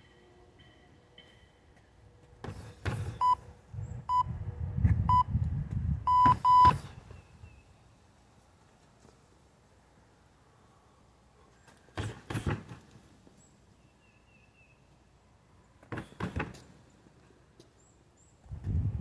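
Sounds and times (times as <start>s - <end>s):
electronic beeps: 6.1s - 6.8s.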